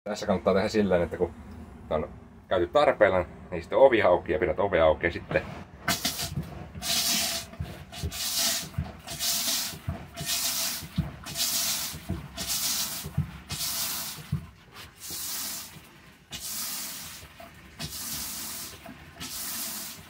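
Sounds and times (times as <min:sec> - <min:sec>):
flush pump plunger knock: 0:05.8 - 0:16.5, 0:17.1 - 0:19.9
rinse water spraying into bowl: 0:05.8 - 0:20.0.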